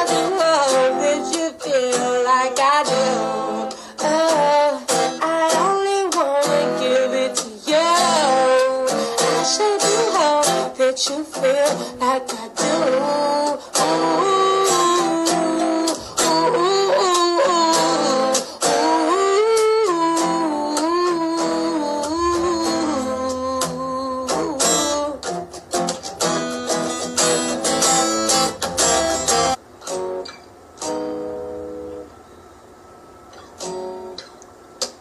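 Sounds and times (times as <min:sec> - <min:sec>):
person singing wordlessly: 0:00.0 - 0:25.3
acoustic guitar strumming: 0:00.0 - 0:32.4, 0:33.2 - 0:35.0.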